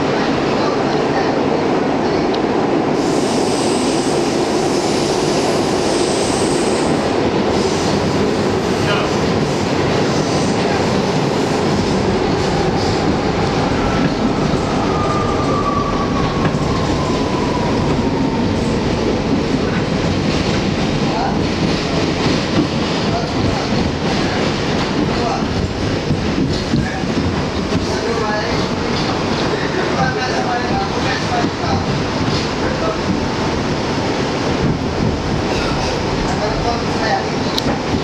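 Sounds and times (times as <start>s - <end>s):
train wheels rumbling on rails: 0.0s - 38.0s
rail-joint clicks: 37.4s - 38.0s.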